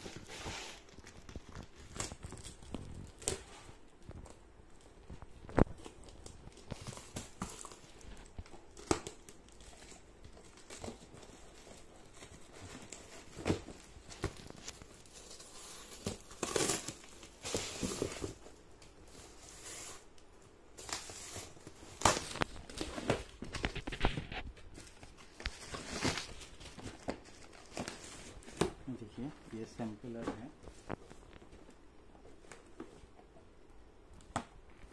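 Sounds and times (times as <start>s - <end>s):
tape and plastic tearing: 12.7s - 18.4s, 20.8s - 28.8s
cardboard flaps rustling: 20.9s - 33.2s.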